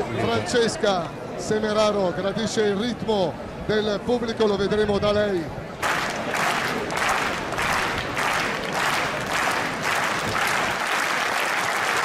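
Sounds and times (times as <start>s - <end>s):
crowd applause: 5.8s - 12.0s
crowd clapping in unison: 5.8s - 12.0s.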